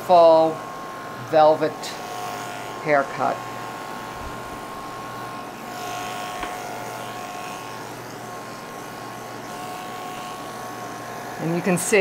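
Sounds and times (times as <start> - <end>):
electric clippers humming: 0.0 - 12.0.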